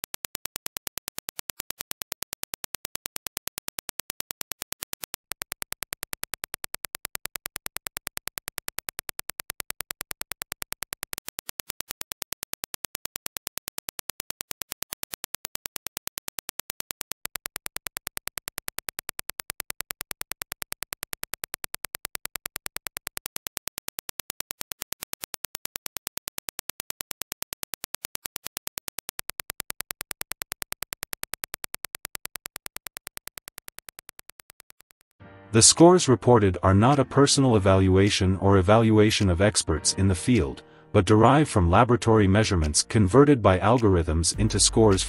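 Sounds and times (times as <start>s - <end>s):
sharp evenly spaced clicks: 0.0s - 35.2s.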